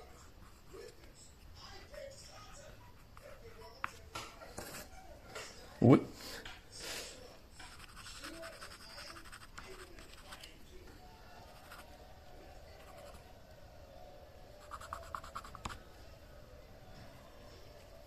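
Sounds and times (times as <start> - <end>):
pencil scratching on card: 7.6 - 10.6, 11.5 - 11.9, 12.7 - 13.2, 14.6 - 15.8.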